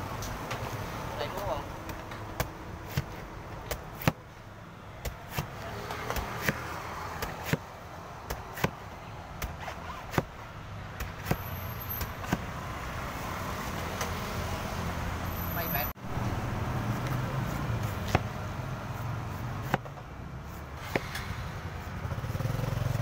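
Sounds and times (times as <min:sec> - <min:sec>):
knife chopping coconut husk: 0:01.3 - 0:04.3, 0:05.0 - 0:12.5, 0:16.8 - 0:21.1.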